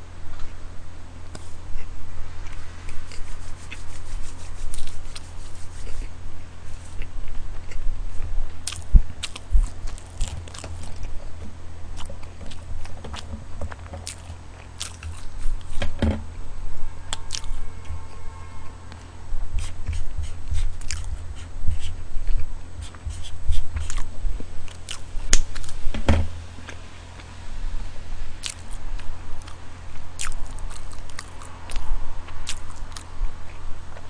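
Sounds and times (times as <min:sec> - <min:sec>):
low hum: 0:00.0 - 0:34.0
chewing and biting: 0:01.3 - 0:11.3, 0:11.9 - 0:15.8, 0:17.1 - 0:17.6, 0:18.9 - 0:25.8, 0:28.4 - 0:34.0.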